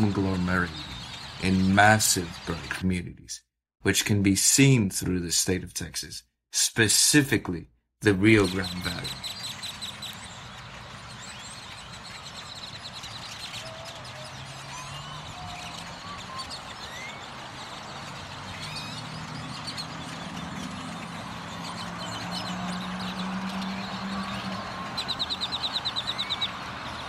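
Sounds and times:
flock of grackles calling: 8.1s - 27.0s.

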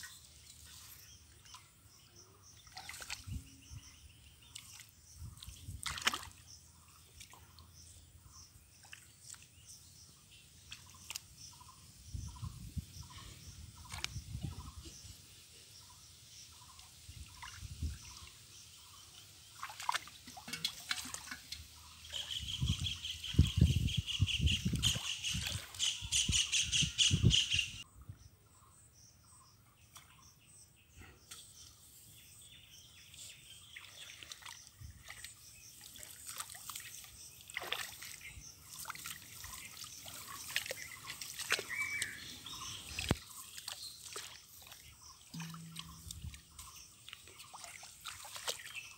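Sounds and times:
hands splashing in muddy water: 2.6s - 3.4s, 4.5s - 6.4s, 33.8s - 48.9s.

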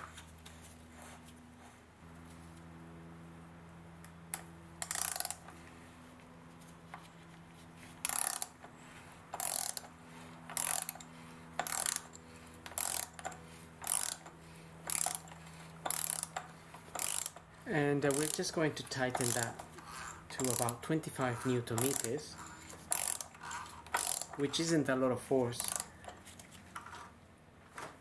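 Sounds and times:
socket ratchet clicking: 4.4s - 5.6s, 8.0s - 8.6s, 9.3s - 9.9s, 10.5s - 17.5s, 18.1s - 24.4s, 25.6s - 26.2s.

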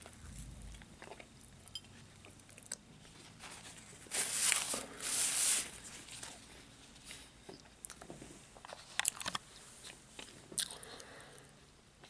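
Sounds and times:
person chewing: 0.0s - 2.9s, 10.2s - 11.2s
paper napkin rustling: 3.2s - 6.5s.

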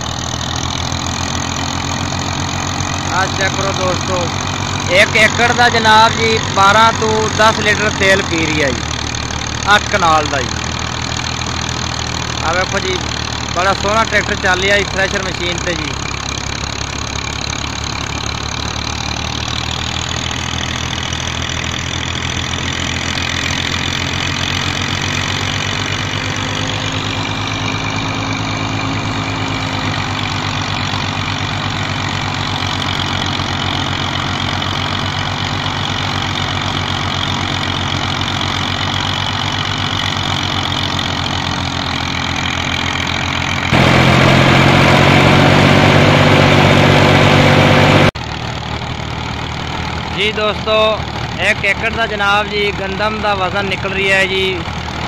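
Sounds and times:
diesel tractor engine running: 0.0s - 55.0s
thresher running: 0.0s - 55.0s.

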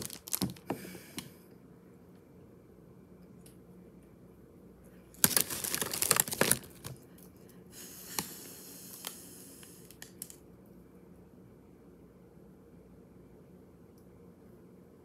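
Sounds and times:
plastic bag crinkling: 0.0s - 0.7s, 5.1s - 7.0s.

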